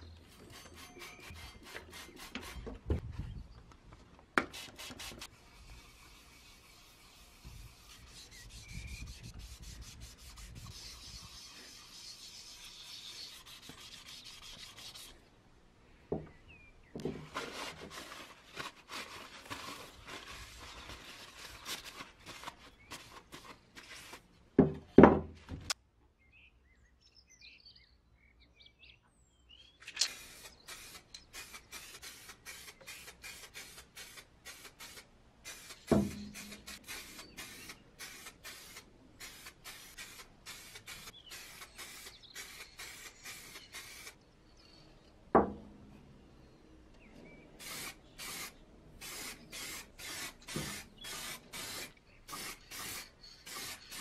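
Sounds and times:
sandpaper rubbing metal: 0.3s - 2.7s, 4.5s - 15.2s, 30.1s - 44.2s, 47.6s - 54.0s.

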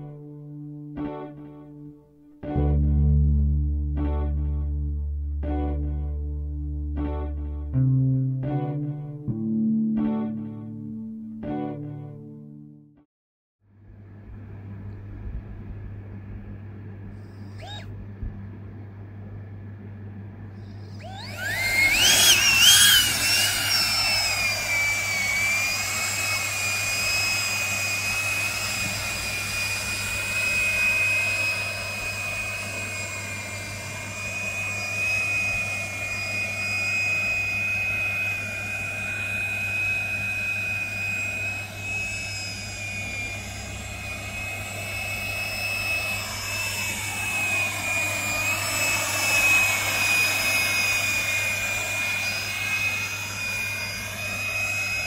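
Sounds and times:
model copter propellers whining: 17.2s - 17.9s, 20.6s - 55.0s.

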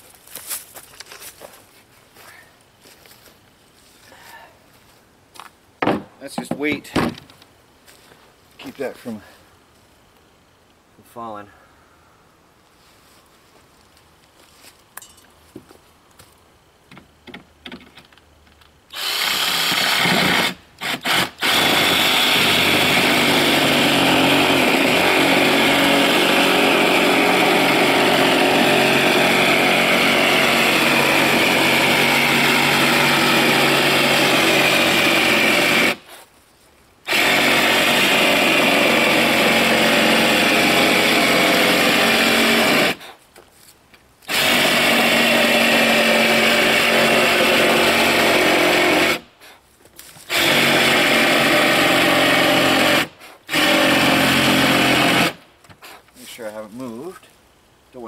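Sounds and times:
power tool motor whining: 18.9s - 36.0s, 37.1s - 43.0s, 44.3s - 49.2s, 50.3s - 55.4s.

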